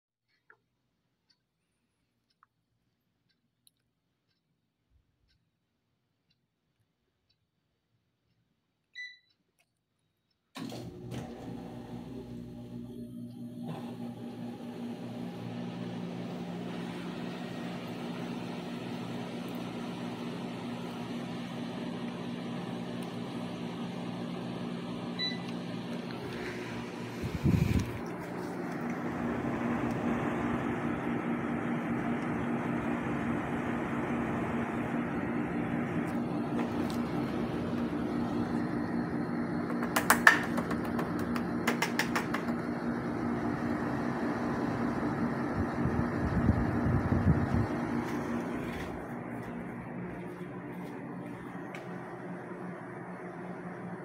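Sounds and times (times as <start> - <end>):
air conditioner beep: 8.9 - 10.6, 20.7 - 26.0
air conditioner humming: 14.0 - 54.0.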